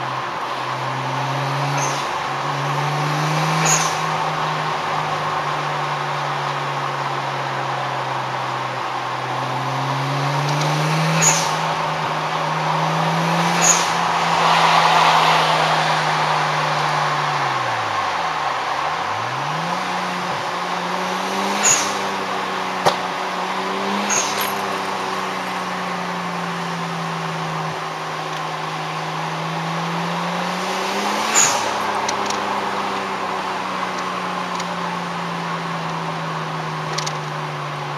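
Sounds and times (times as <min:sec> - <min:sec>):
car engine accelerating: 0:00.0 - 0:37.9
exhaust pop: 0:22.8 - 0:23.1.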